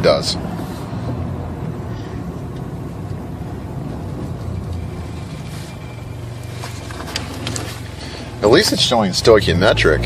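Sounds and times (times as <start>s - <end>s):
car engine running: 0.0s - 10.0s.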